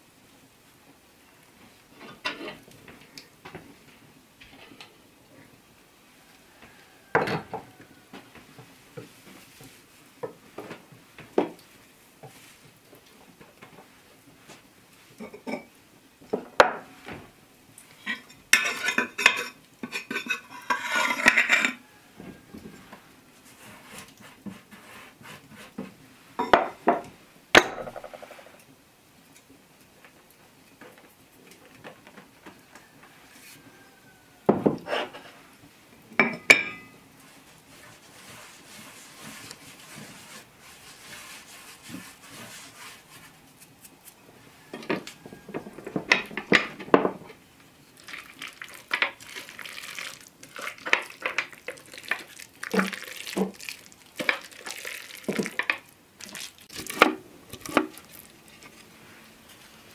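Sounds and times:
crockery and utensils clinking: 15.2 - 15.7, 18.1 - 21.8, 26.4 - 26.9, 36.2 - 37.0
clattering and scraping: 18.6 - 21.8, 27.6 - 28.6.

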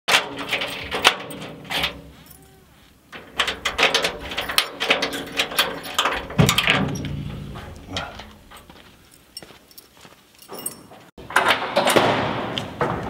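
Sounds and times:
keys rattling in lock: 3.2 - 7.0, 8.0 - 11.0
sheet-metal door clattering: 3.2 - 7.8.

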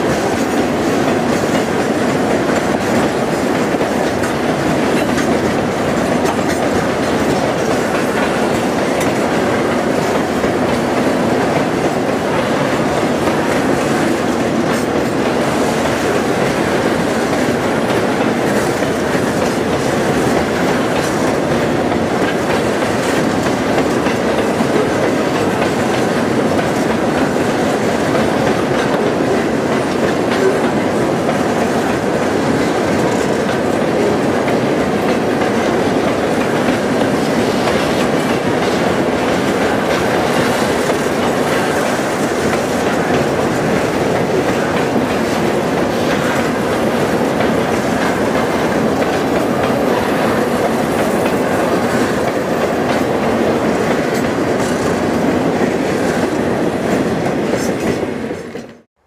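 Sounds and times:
steel train wheels on rail: 0.0 - 59.0.

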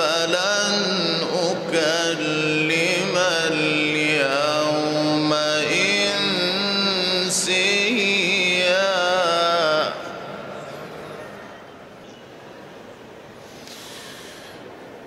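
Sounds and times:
man reciting melodically: 0.0 - 10.5.

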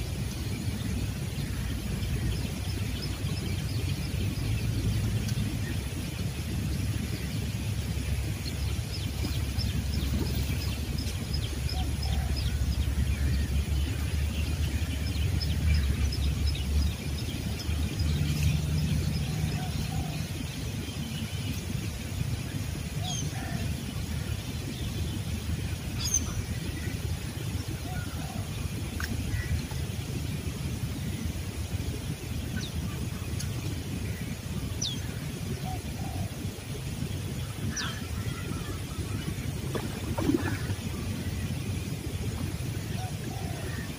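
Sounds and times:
steady low rumble: 0.0 - 43.9.

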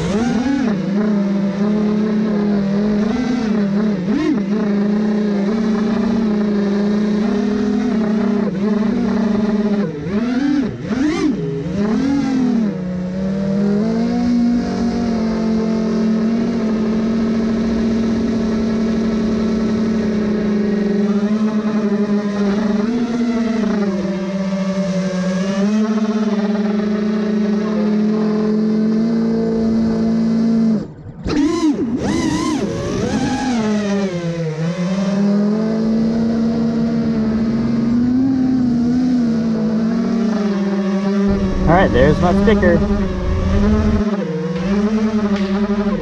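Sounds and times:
quadcopter motors whining: 0.0 - 28.0, 41.3 - 46.0.

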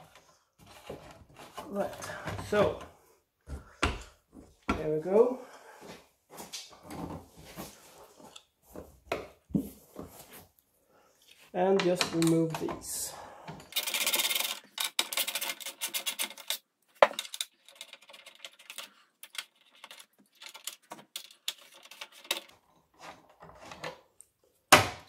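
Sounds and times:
screwdriver scraping screws: 13.6 - 22.6.

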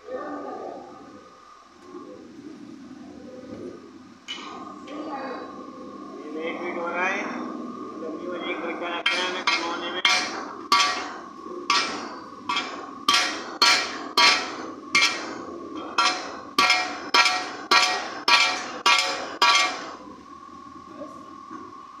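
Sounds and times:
hammer striking metal: 9.0 - 20.0.

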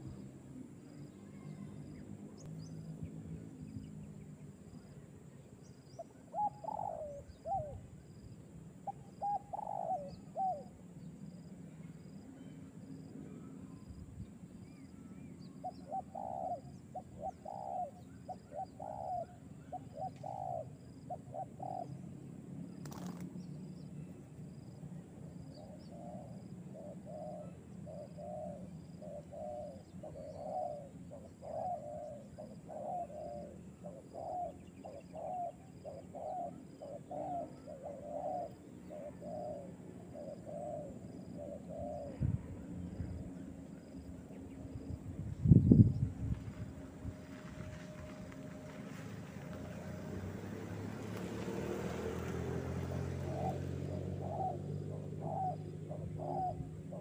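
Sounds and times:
dove cooing: 6.0 - 7.9, 8.8 - 10.8, 15.0 - 22.0, 25.6 - 42.2, 51.6 - 57.0.

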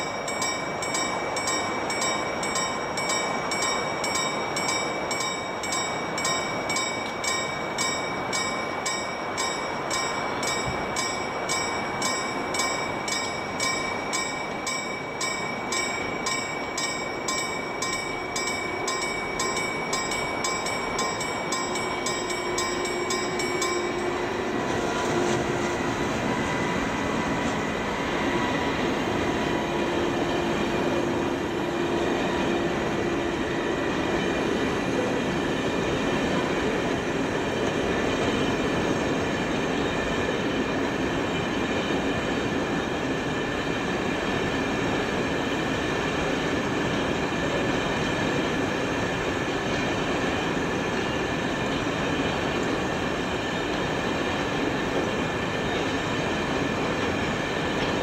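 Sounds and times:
level crossing warning bell: 0.0 - 37.4
train wagons rolling on rails: 0.0 - 58.0.

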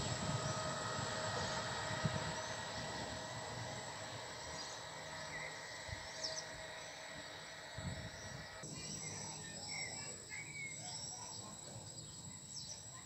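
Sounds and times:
train wheels rumbling on rails: 0.0 - 8.6.

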